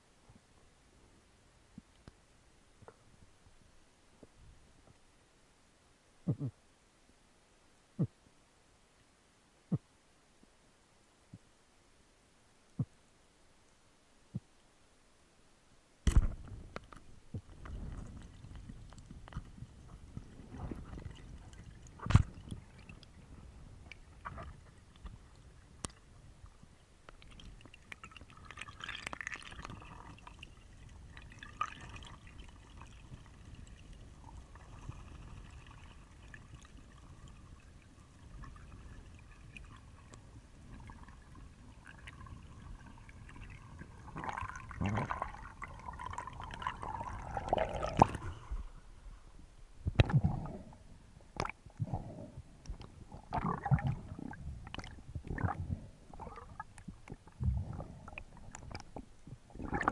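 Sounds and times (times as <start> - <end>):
water gurgling and sloshing: 16.1 - 59.9.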